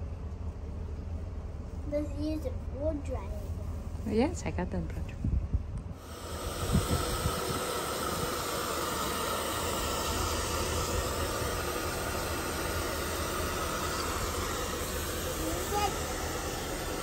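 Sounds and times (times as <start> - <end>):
hair dryer running: 6.0 - 17.0.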